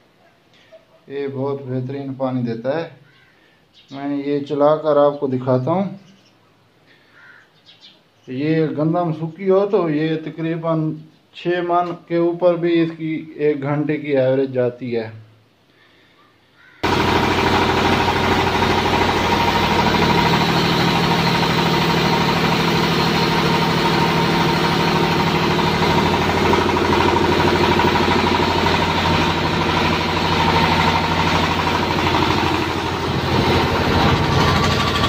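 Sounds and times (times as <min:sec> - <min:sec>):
diesel engine running: 0:16.8 - 0:35.0.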